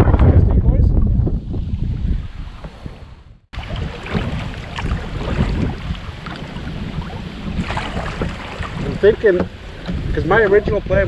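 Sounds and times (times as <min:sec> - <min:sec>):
wind buffeting microphone: 0:00.0 - 0:11.0
water splashing from paddle strokes: 0:02.4 - 0:10.9.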